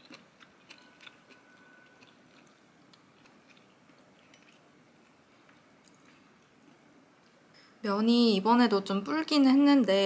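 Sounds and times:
faint chewing: 0.0 - 7.4.

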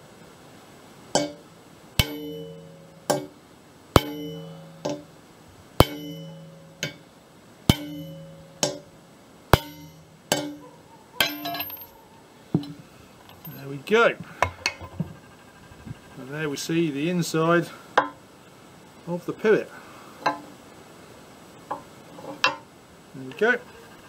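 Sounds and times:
hammer striking metal: 1.2 - 1.4, 2.0 - 3.4, 4.0 - 5.1, 5.8 - 7.1, 7.7 - 8.9, 9.5 - 10.6, 11.2 - 11.9
metal clinks: 4.0 - 5.1, 5.8 - 7.0, 7.7 - 8.9, 9.5 - 12.0, 13.2 - 15.0.

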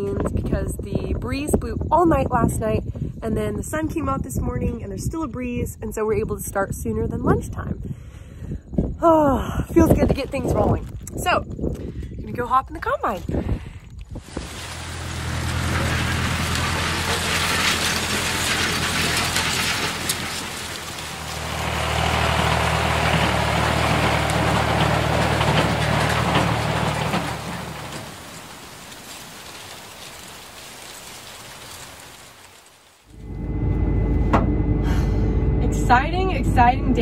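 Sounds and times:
combine harvester running: 14.2 - 37.0.

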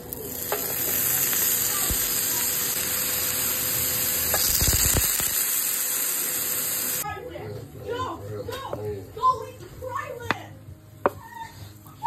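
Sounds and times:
sausage sizzling in hot oil: 0.0 - 7.0.

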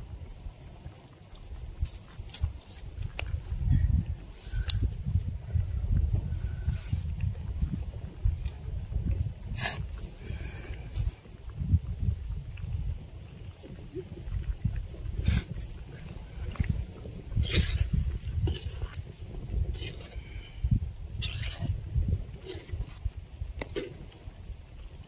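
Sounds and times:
high insect trill: 0.0 - 25.0
wind buffeting microphone: 0.0 - 25.0.

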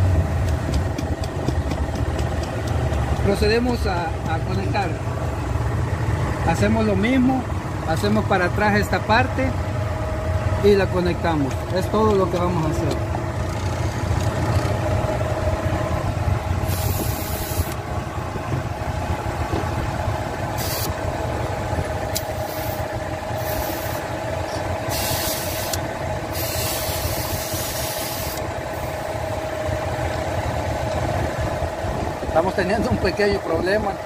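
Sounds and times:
car engine idling: 0.0 - 34.0
refrigerant hissing: 16.6 - 17.8, 20.6 - 20.9, 22.2 - 24.1, 24.9 - 28.5.

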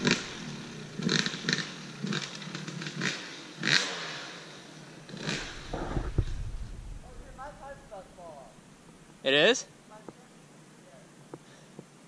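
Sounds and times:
dirt bike engine revving: 0.0 - 9.4.

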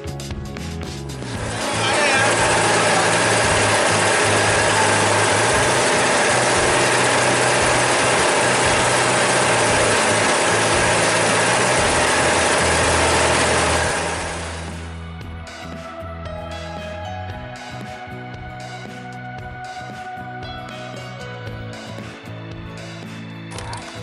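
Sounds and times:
boat engine running: 1.2 - 15.0
rushing noise: 1.3 - 14.8.

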